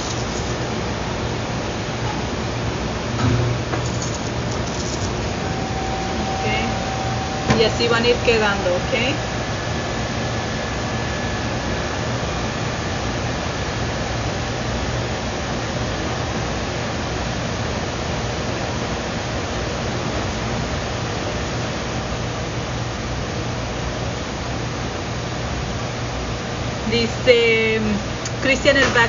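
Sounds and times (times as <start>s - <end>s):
low hum: 0.0s - 16.4s
faint high tone: 5.4s - 9.3s.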